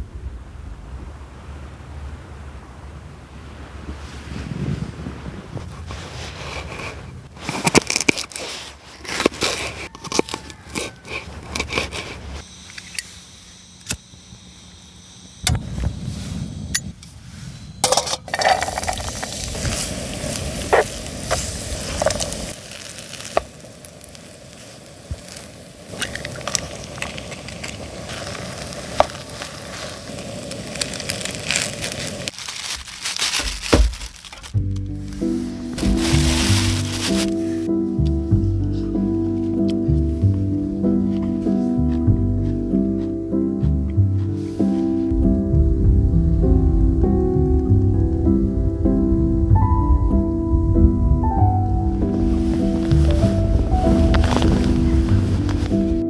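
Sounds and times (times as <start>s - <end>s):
dull low thudding: 38.0s - 56.0s.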